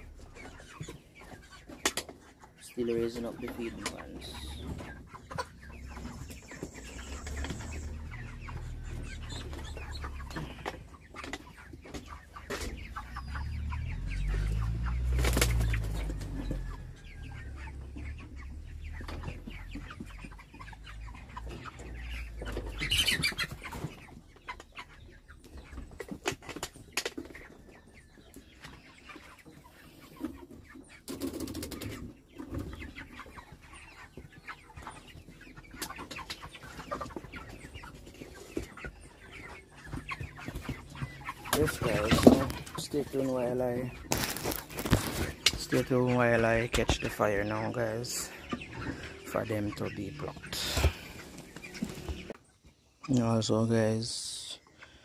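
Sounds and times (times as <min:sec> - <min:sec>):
chickens clucking: 0:00.0 - 0:55.0
chickens flapping wings: 0:14.4 - 0:16.6, 0:31.1 - 0:32.6, 0:43.9 - 0:45.8.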